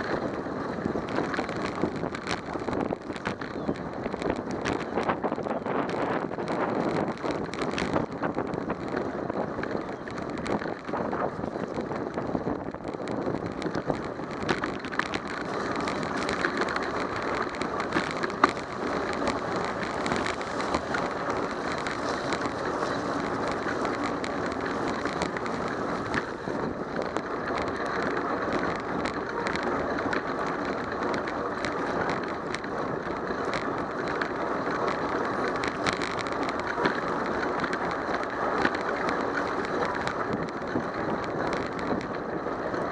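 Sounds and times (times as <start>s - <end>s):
small clicks: 0.0s - 42.9s
wind noise on microphone: 0.0s - 42.9s
bicycle tyres hissing on wet pavement: 15.4s - 40.4s.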